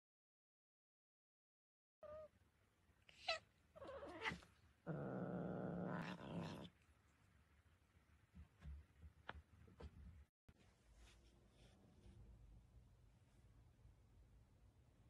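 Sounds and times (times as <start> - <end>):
cat meowing: 2.0 - 2.3, 3.1 - 4.5.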